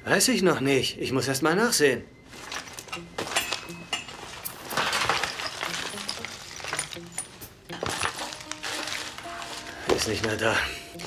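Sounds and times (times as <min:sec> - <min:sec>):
items spilling onto tabletop: 0:04.2 - 0:10.4
objects shuffling on table: 0:07.8 - 0:10.5.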